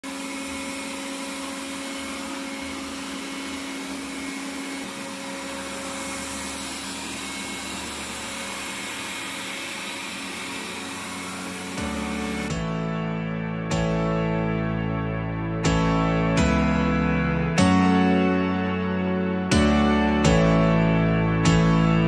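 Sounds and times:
robot vacuum motor whirring: 0.0 - 12.5.

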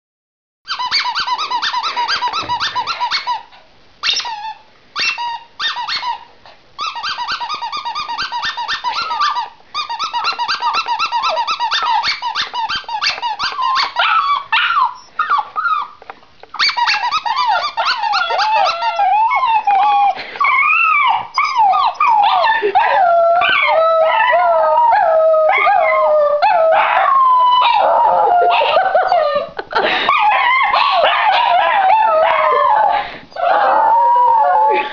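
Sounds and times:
dogs howling: 16.6 - 29.5, 30.1 - 34.9.

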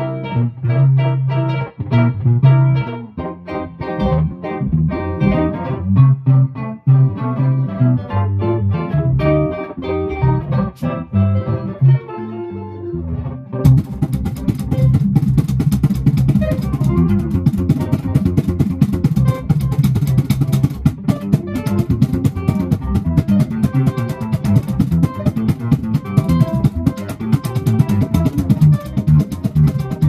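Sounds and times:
double bass plucked notes: 0.0 - 30.0
sharp percussive clicks: 13.6 - 30.0.

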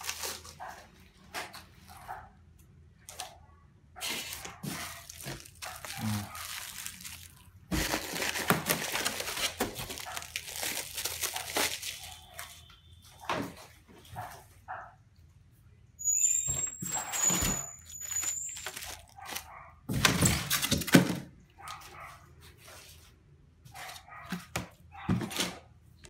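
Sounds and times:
plastic wrapping crinkling: 0.0 - 2.0, 4.0 - 12.7, 17.3 - 19.6.

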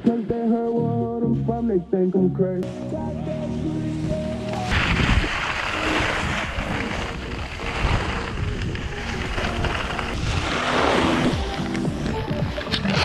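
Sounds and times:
skis hissing over snow: 4.5 - 12.8
wind on microphone: 4.7 - 11.5.

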